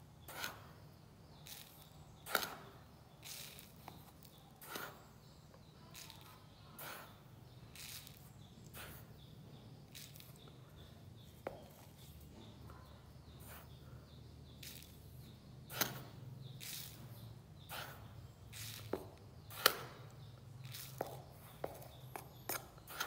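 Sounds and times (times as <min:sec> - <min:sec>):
powder pouring hiss: 0:03.2 - 0:04.0, 0:06.0 - 0:09.0.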